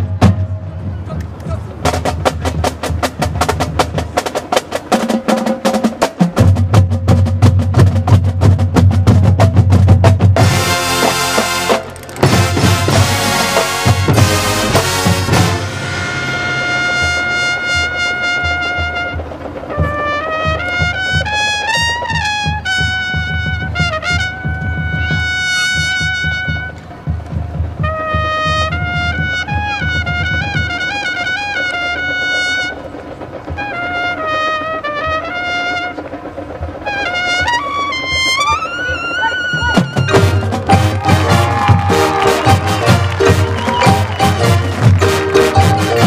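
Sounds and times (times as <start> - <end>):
low drum beat: 0.0 - 31.2, 39.4 - 46.0
brass band playing slow melody: 10.4 - 27.1, 27.7 - 36.2, 36.8 - 46.0.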